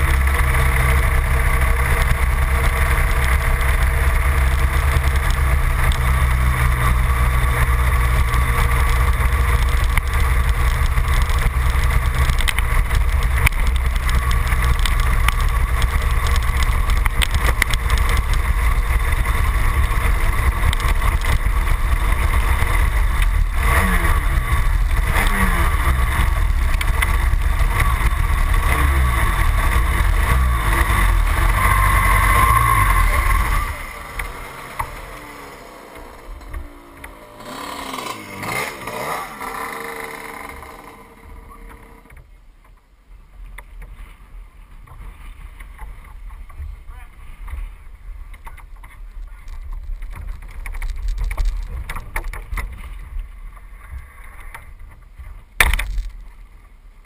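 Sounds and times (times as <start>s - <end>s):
two-stroke kart engine idling: 0.0s - 42.2s.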